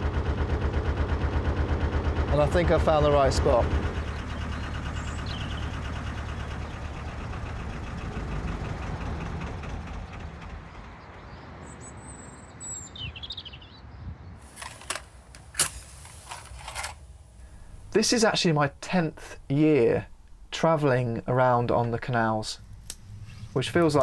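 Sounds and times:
low steady rumble: 0:00.0 - 0:11.2, 0:14.6 - 0:24.0
birds chirping: 0:02.4 - 0:15.2, 0:17.4 - 0:24.0
matchbox rattling: 0:14.5 - 0:17.0.

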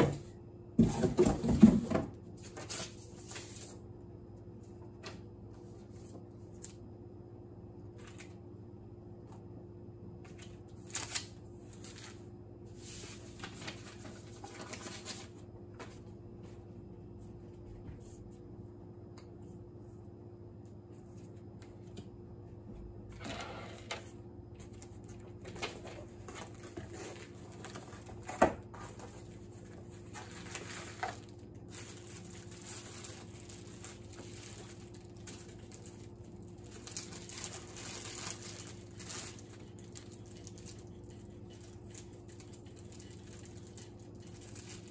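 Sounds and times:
paper and plastic packaging rustling: 0:00.0 - 0:03.9, 0:10.3 - 0:16.1, 0:24.0 - 0:44.9.

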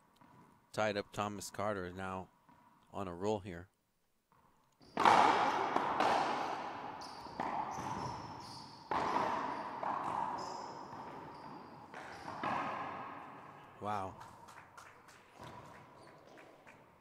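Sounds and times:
sneakers squeaking on wooden floor: 0:04.3 - 0:17.0
racquetball cracks echoing: 0:04.8 - 0:17.0.

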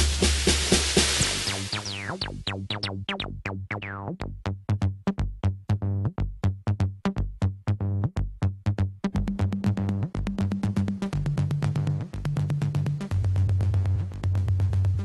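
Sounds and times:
electronic music with fast beat: 0:00.0 - 0:04.4, 0:09.2 - 0:15.0.

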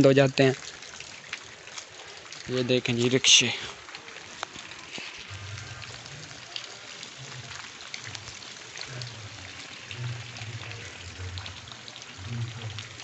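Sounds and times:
steady wet hiss: 0:00.0 - 0:13.0
footsteps squelching through mud: 0:01.0 - 0:05.5.

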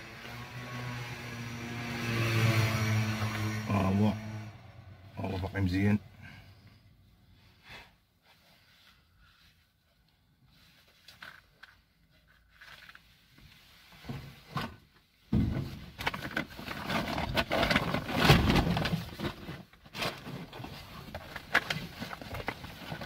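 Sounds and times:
plastic bags and clothing rustling: 0:15.6 - 0:23.0.

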